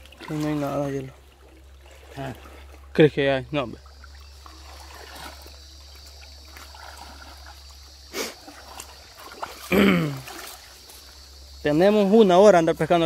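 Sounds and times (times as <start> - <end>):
creek water trickling and sloshing: 0.0 - 13.0
sharp water splash: 3.9 - 10.8.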